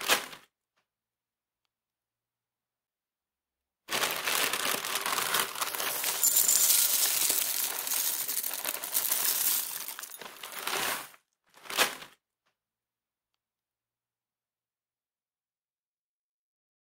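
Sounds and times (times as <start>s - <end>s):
cereal flakes pouring into a bowl: 4.0s - 11.1s.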